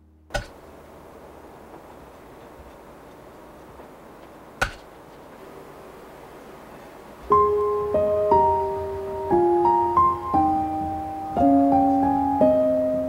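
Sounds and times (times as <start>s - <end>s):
slow piano music: 7.0s - 13.0s.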